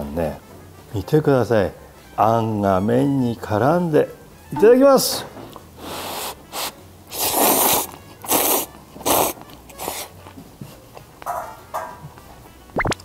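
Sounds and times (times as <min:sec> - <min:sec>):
man slurping noodles: 0:05.8 - 0:10.1.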